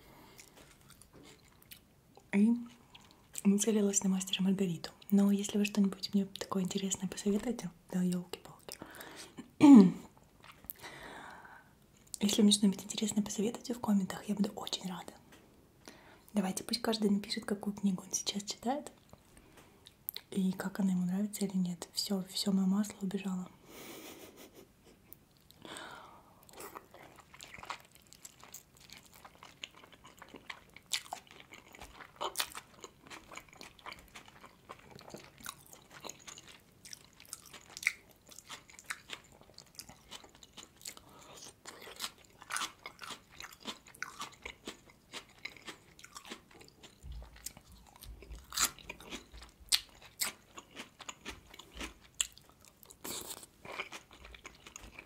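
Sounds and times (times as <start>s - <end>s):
wet chewing sounds: 0.2s - 1.9s, 26.4s - 55.0s.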